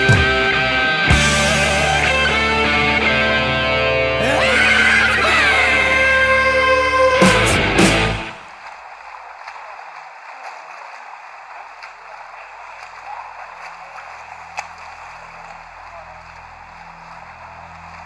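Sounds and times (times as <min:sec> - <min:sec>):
swimmers splashing water: 0:00.0 - 0:18.0
faint low hum: 0:12.5 - 0:18.0.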